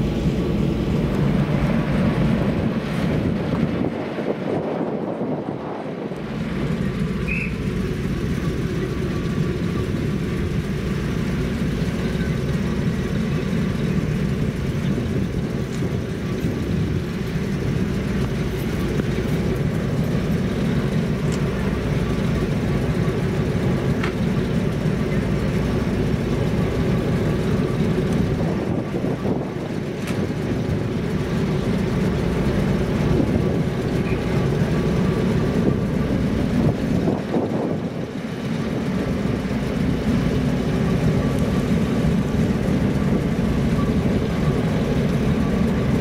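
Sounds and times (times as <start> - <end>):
diesel engine idling: 0.0 - 46.0.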